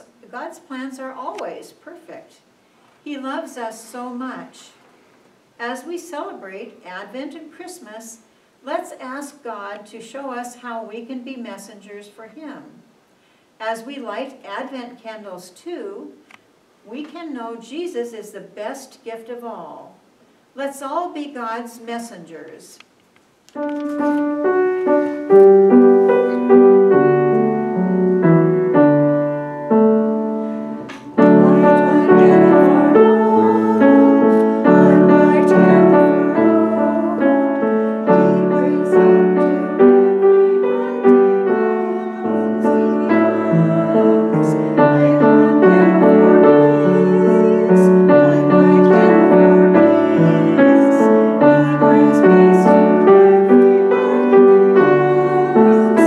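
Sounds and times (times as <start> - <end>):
slow piano piece: 23.6 - 56.0.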